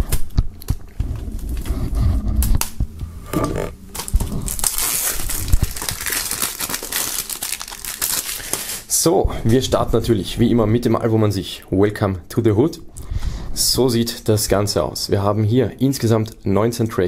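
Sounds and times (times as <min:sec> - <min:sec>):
plastic film crinkling: 0:00.0 - 0:09.0
knife slitting plastic wrap: 0:03.9 - 0:08.9.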